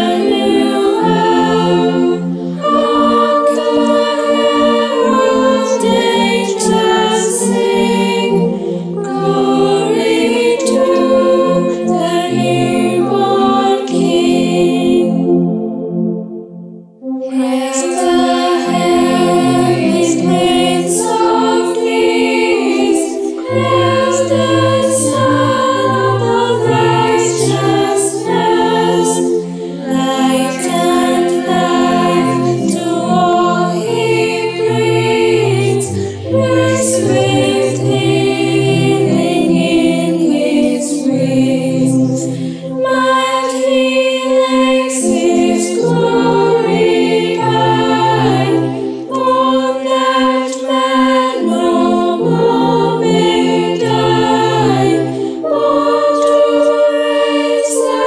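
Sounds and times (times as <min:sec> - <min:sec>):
choir singing in harmony: 0:00.0 - 0:58.0.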